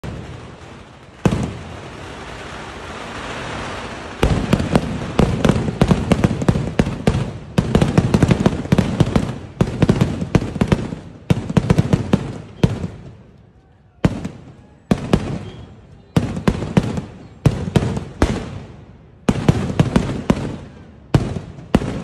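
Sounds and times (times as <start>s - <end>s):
fireworks bangs: 0.0s - 22.0s.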